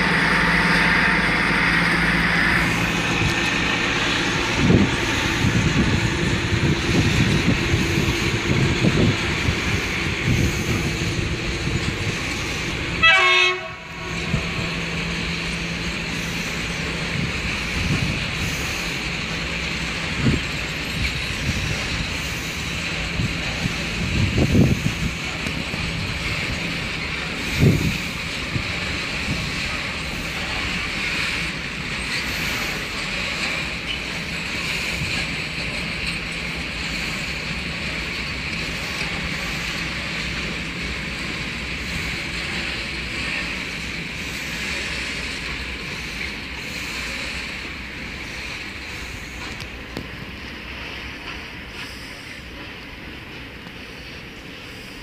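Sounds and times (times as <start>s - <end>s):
train rumble: 0.0s - 55.0s
wind noise on microphone: 2.4s - 14.9s, 16.2s - 19.1s, 20.0s - 30.0s.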